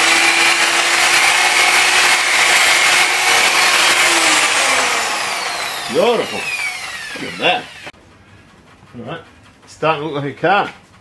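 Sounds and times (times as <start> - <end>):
electric polisher whine: 0.0 - 7.9.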